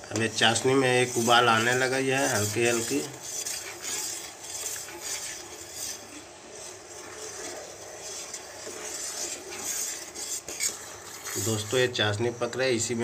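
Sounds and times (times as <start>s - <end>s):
syrup boiling hiss: 0.0s - 13.0s
metal spoon scraping a pan: 0.1s - 12.0s.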